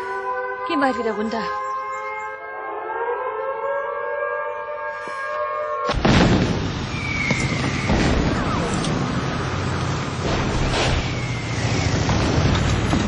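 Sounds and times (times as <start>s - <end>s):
air-raid siren wailing: 0.0s - 6.0s
artillery shelling rumble: 5.9s - 13.0s
falling shell whistle: 6.9s - 8.2s.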